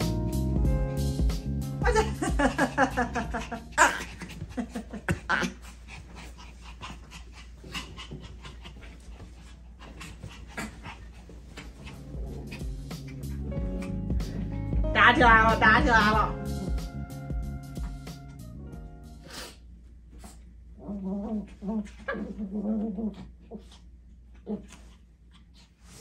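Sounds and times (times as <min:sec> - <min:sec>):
dogs play vocalising: 0:02.2 - 0:14.5, 0:20.3 - 0:26.0
scuffling on bedding: 0:02.3 - 0:16.2.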